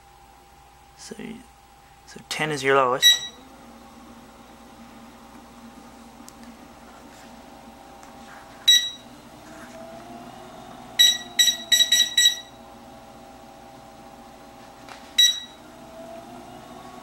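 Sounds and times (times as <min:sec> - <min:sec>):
motor humming: 0:02.4 - 0:17.0
button beeps: 0:08.7 - 0:09.0, 0:11.0 - 0:12.5, 0:15.2 - 0:15.6.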